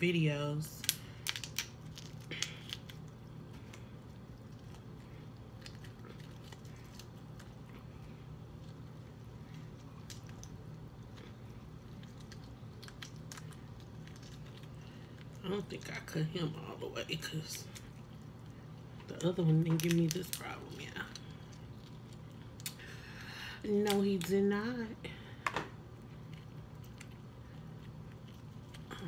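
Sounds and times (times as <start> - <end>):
steady low hum: 0.0 - 29.0
shell crackling and clicking: 0.8 - 3.1.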